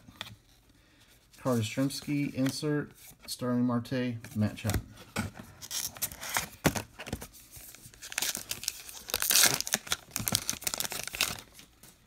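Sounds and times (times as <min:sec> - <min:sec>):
wrapper crinkling and rustling: 0:07.2 - 0:12.0
card pack wrapper tearing: 0:08.0 - 0:11.7.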